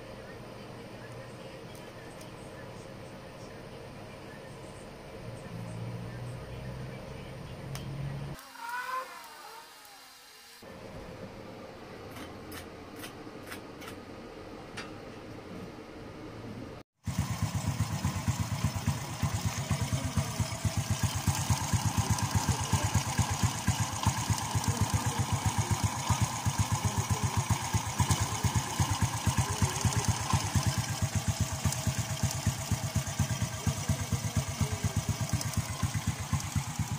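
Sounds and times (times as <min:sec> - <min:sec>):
motorcycle engine idling: 0:17.0 - 0:36.9.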